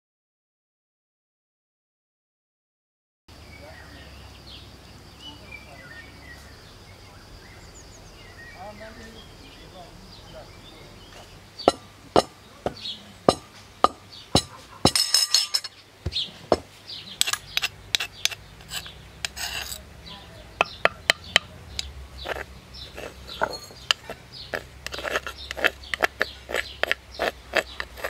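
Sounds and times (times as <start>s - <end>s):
metal spoon knocking in wooden bowl: 11.7s - 16.6s, 17.2s - 19.8s, 20.6s - 28.0s
spoon rasping scrape: 17.1s - 19.8s, 21.7s - 28.0s.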